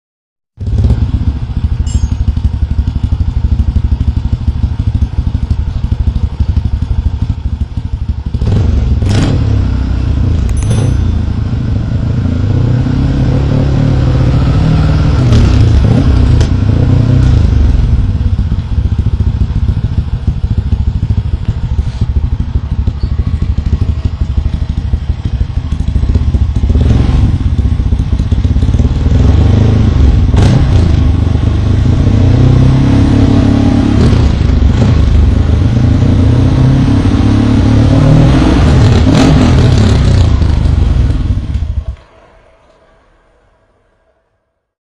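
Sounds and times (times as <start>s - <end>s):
scooter engine revving: 2.4s - 41.9s.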